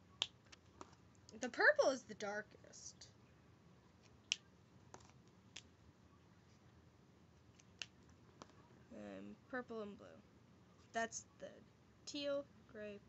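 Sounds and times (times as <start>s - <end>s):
marker caps clicking: 4.2s - 5.7s.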